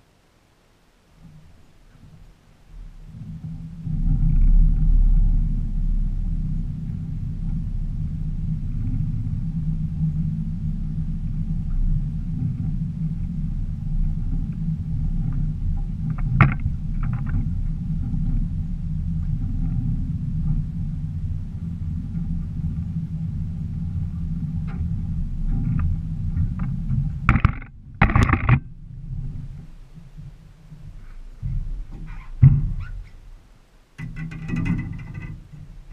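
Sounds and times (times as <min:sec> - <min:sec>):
boat motor rumbling: 0:02.1 - 0:32.8
camera handling knocks: 0:27.3 - 0:28.6.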